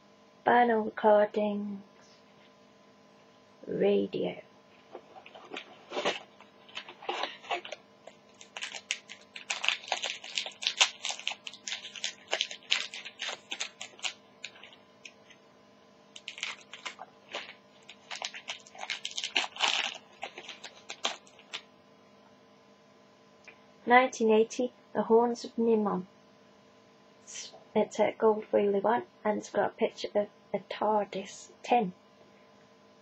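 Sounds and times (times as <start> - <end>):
foil wrapper tearing and crinkling: 5.2 - 15.4, 16.2 - 21.7.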